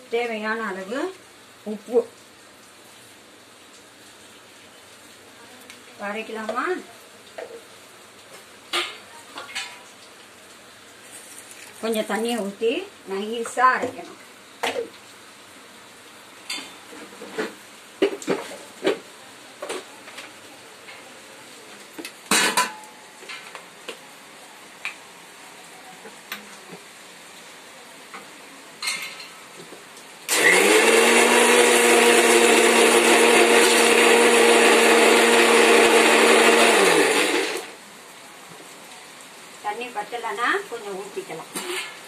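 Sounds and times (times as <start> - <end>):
mixer grinder motor whirring: 30.3 - 37.7.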